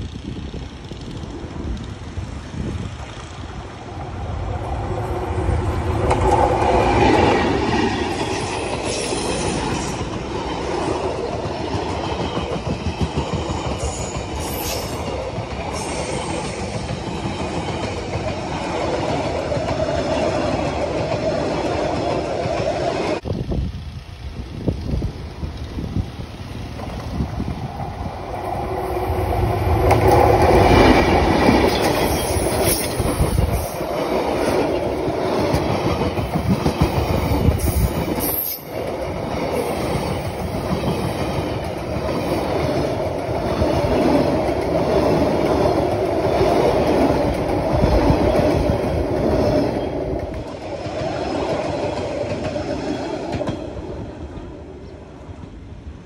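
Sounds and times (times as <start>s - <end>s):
train wheels rumbling on rails: 0.0s - 56.0s
wheel squeal: 12.2s - 15.0s.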